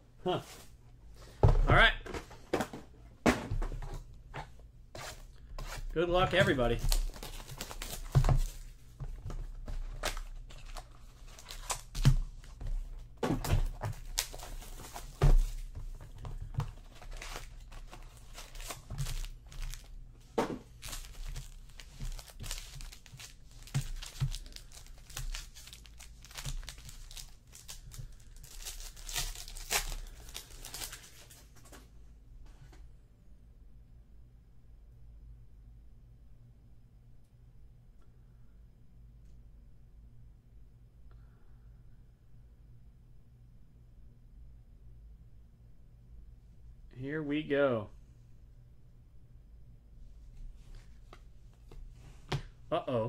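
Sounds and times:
foil packs tearing and crinkling: 6.3 - 8.6, 10.0 - 12.1, 16.8 - 20.0, 20.8 - 31.4.

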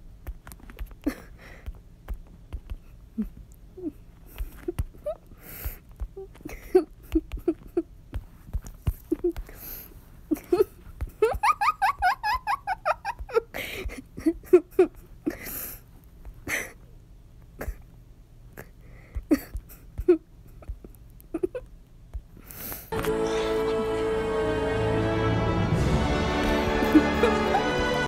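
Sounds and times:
high-pitched laughter: 10.3 - 13.5, 23.0 - 24.3, 26.7 - 28.0
short breathy sounds: 22.4 - 24.2
music: 22.9 - 28.0.

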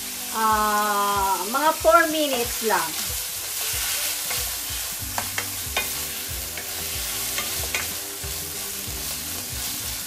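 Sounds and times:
food sizzling in frying pan: 0.0 - 10.0
spatula tapping pan: 3.7 - 8.1.

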